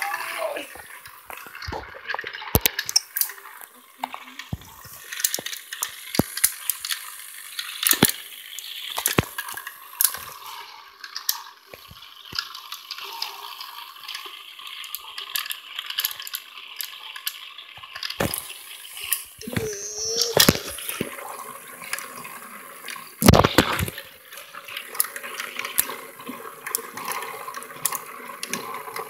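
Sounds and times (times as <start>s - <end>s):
sharp clicks and knocks: 0.8s - 7.0s, 23.2s - 24.1s.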